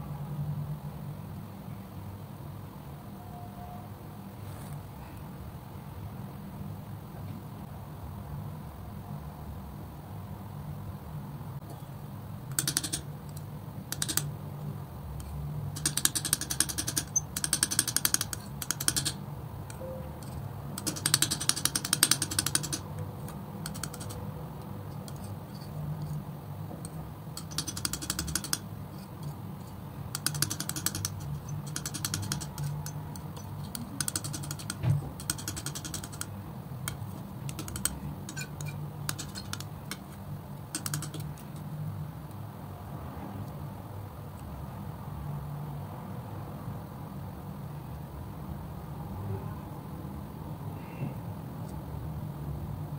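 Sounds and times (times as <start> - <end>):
palette knife scraping paint: 15.2 - 19.2, 20.2 - 24.2, 24.9 - 26.2, 27.4 - 41.6.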